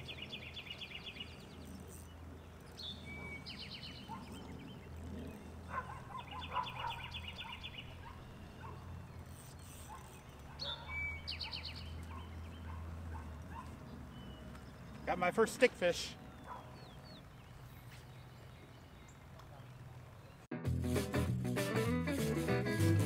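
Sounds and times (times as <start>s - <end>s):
songbird trilling: 0.0s - 15.3s.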